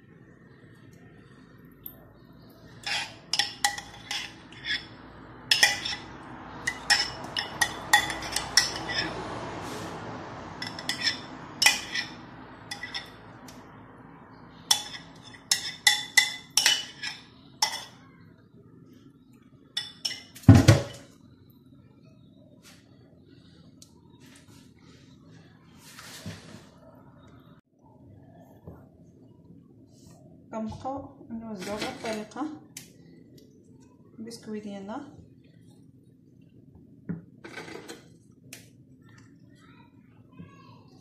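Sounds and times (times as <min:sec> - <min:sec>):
spoon clinking and scraping bowl: 0:02.7 - 0:09.3, 0:10.6 - 0:13.3, 0:14.6 - 0:18.0, 0:19.8 - 0:20.8, 0:31.6 - 0:32.4, 0:37.4 - 0:38.1.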